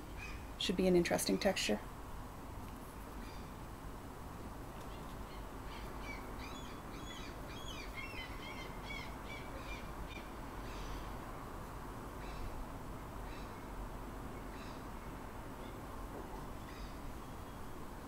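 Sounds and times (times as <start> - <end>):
bird chirping: 4.9 - 11.1.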